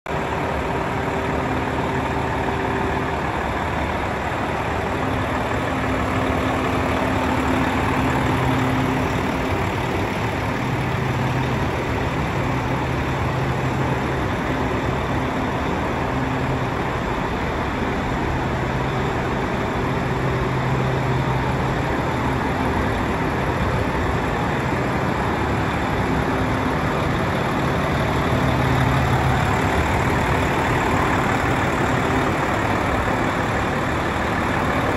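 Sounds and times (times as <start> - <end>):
diesel truck engine idling: 0.1 - 34.9.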